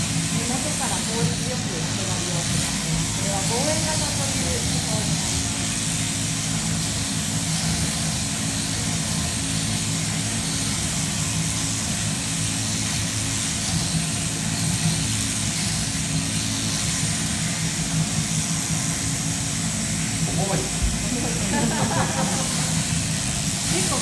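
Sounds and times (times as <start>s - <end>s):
sheep-shearing machine drone: 0.0s - 24.0s.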